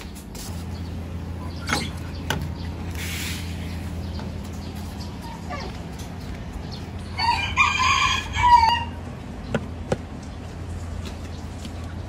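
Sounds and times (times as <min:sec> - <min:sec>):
rooster crowing: 0:07.1 - 0:09.1.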